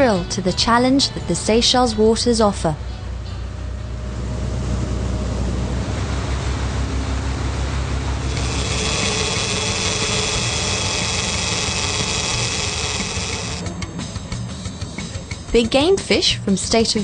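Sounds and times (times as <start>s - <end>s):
boat engine running: 4.6s - 15.3s.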